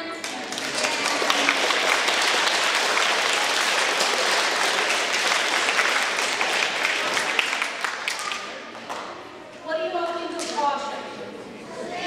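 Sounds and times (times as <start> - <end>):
audience applauding: 0.2 - 8.6.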